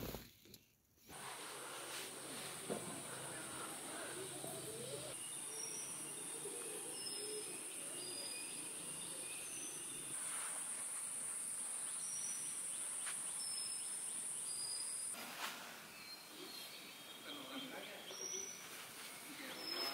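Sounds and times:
high insect drone: 1.2s - 15.1s.

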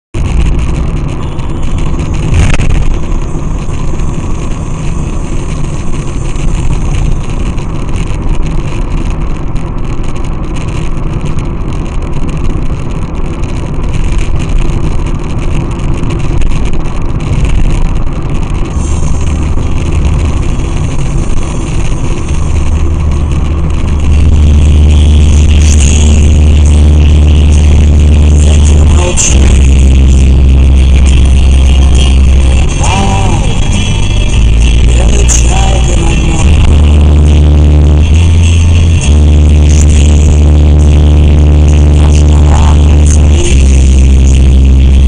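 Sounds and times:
deep low hum: 0.0s - 45.0s
vehicle engine and tyre rumble: 0.0s - 45.0s
short sharp sound: 0.2s - 8.1s.

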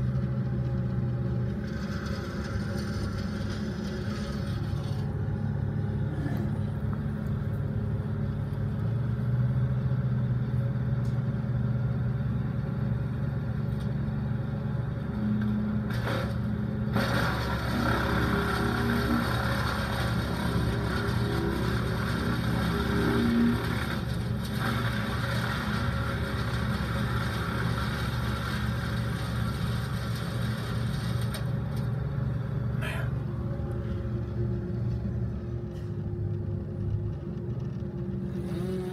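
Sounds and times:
chipper engine running: 0.0s - 38.9s
branches grinding in chipper: 15.9s - 32.0s.

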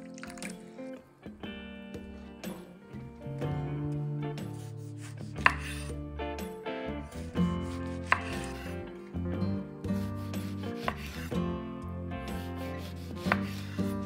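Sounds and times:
soft background music: 0.0s - 14.0s
knife slicing tomatoes: 4.6s - 6.0s, 7.4s - 8.9s, 9.9s - 11.4s, 12.3s - 14.0s
knife knocking on wooden board: 8.0s - 8.6s.

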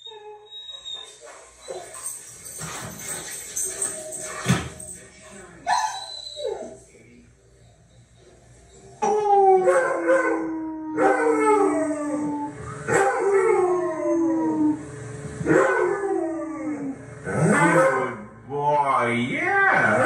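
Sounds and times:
dog howling: 9.0s - 18.3s.

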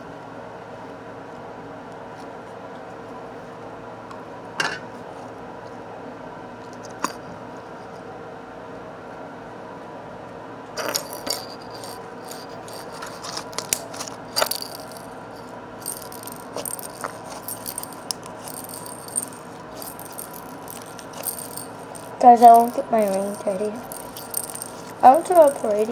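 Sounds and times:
faint hum: 0.0s - 25.9s
small objects rattling and clicking: 10.8s - 25.9s.

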